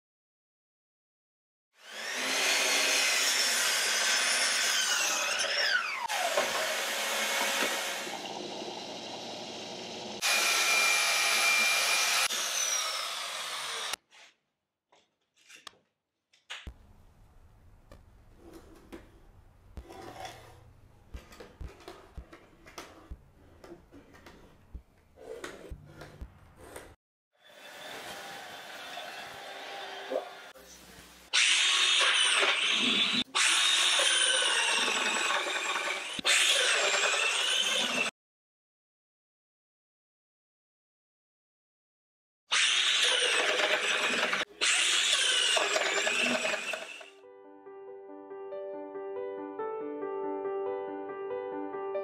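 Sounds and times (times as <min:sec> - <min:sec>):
track saw motor cutting: 0:01.8 - 0:14.0, 0:31.4 - 0:38.1, 0:42.5 - 0:47.2.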